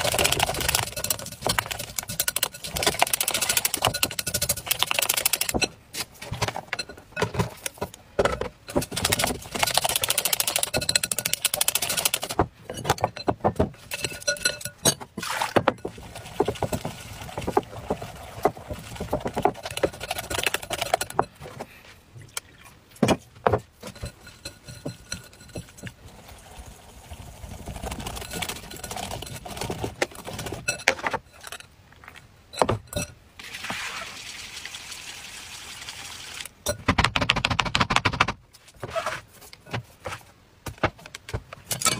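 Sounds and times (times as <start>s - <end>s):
utensil beating batter in glass bowl: 0.0s - 5.7s, 8.7s - 21.5s, 23.7s - 31.6s.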